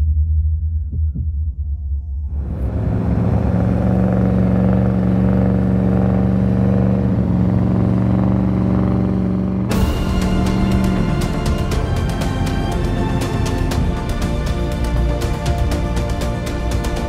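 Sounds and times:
music: 0:00.0 - 0:03.0, 0:08.5 - 0:17.0
engine droning under load: 0:02.3 - 0:17.0.

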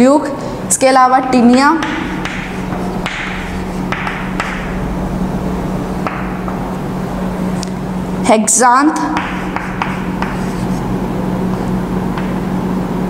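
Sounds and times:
electrical hum: 0:00.0 - 0:13.0
chalk tapping and scratching: 0:01.2 - 0:04.5, 0:09.1 - 0:12.4.

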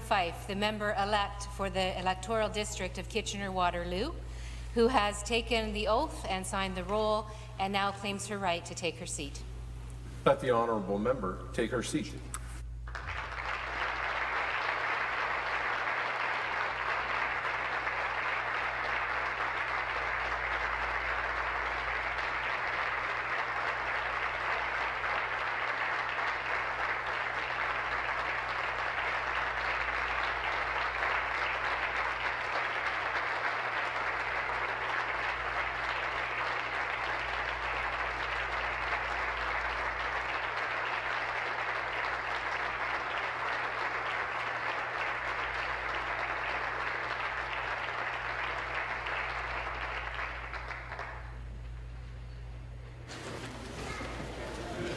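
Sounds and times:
sustained applause: 0:12.8 - 0:54.9.

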